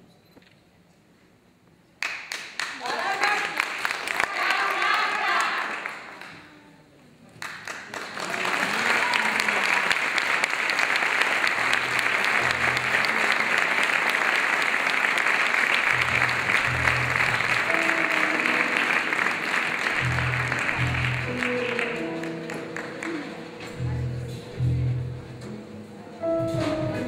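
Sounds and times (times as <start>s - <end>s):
audience applauding: 2.0s - 6.4s, 7.4s - 23.7s
plucked double bass: 15.9s - 17.9s, 19.9s - 21.5s, 23.6s - 27.0s.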